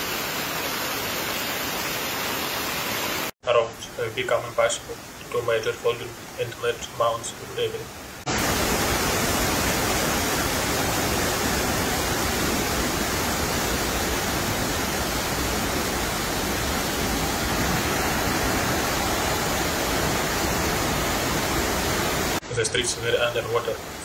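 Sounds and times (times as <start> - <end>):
roar of rushing floodwater: 4.2 - 24.0.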